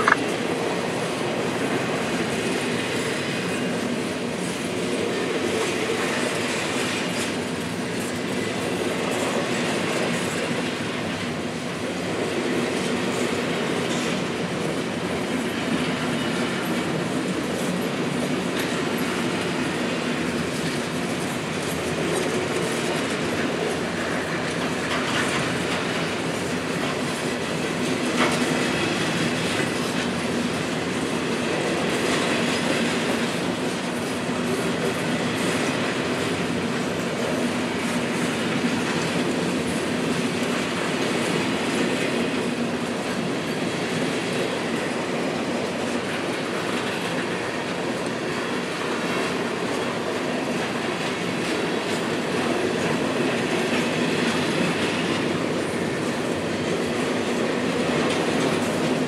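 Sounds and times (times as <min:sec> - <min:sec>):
freight train rolling past: 0:00.0 - 0:59.0.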